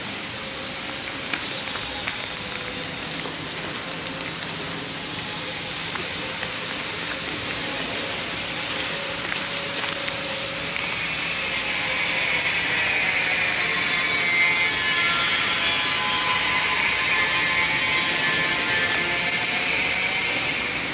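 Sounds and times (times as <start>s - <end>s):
packing machine hiss and whir: 0.0s - 20.9s
thin whine: 0.0s - 20.9s
plastic film crinkling: 1.4s - 11.0s.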